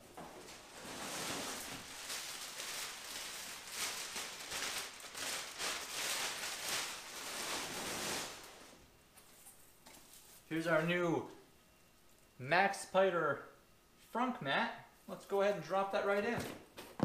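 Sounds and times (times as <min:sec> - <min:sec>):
plastic bag rustling and crinkling: 0:00.0 - 0:10.5.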